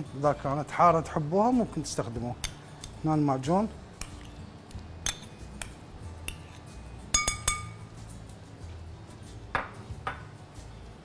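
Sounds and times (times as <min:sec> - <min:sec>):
spoon clinking against bowl: 0:05.0 - 0:07.9.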